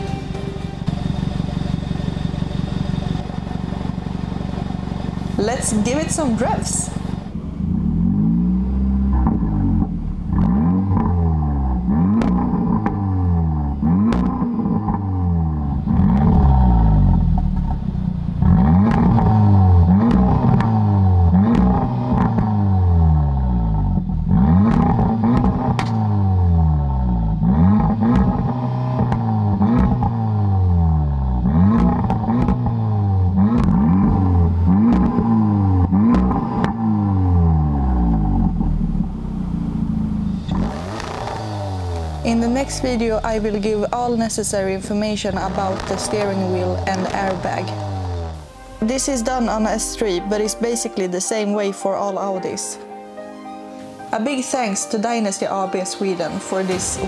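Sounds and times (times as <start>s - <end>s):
car engine revving: 0.0s - 50.6s
exhaust cracks: 0.8s - 50.8s.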